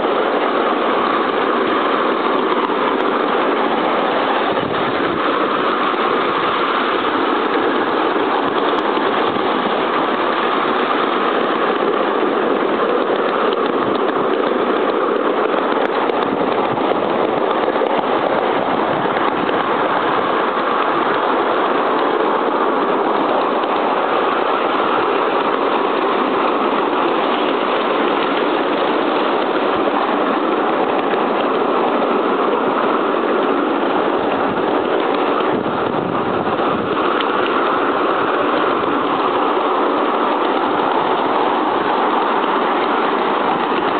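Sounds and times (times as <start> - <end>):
steam locomotive running on rails: 0.0 - 43.9.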